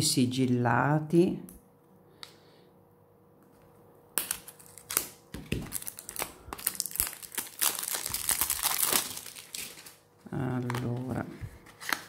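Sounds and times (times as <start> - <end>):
crinkling of wrapping and cardboard: 4.2 - 12.0.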